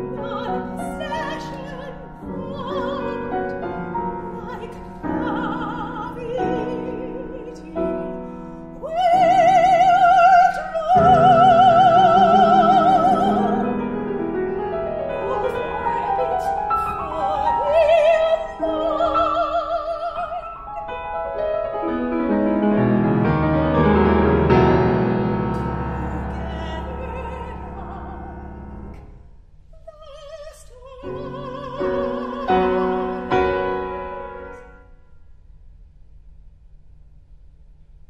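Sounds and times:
soprano singing with vibrato: 0:00.0 - 0:21.1, 0:25.6 - 0:28.6, 0:29.8 - 0:34.7
piano playing: 0:00.0 - 0:29.2, 0:31.0 - 0:35.0.

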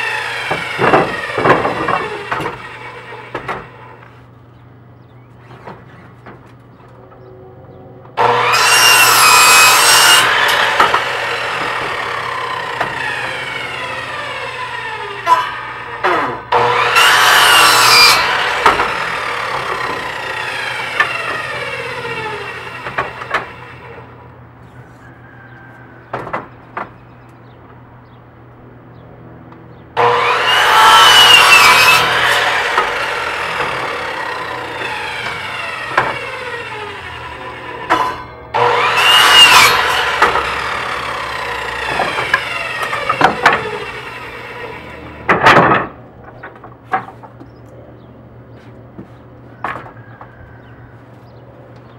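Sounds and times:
miter saw cutting wood: 0:00.0 - 0:04.2, 0:08.2 - 0:24.3, 0:30.0 - 0:46.5.

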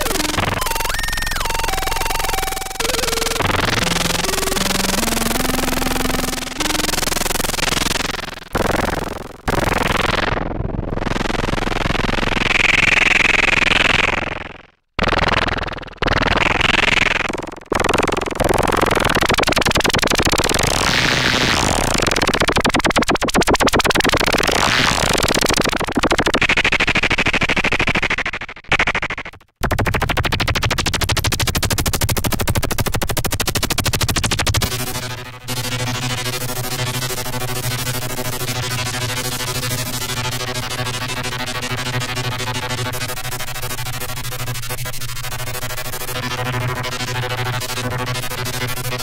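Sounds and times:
synthesizer tone sweeping: 0:00.0 - 0:08.0
synthesizer noisy distorted sounds: 0:00.0 - 0:49.0.

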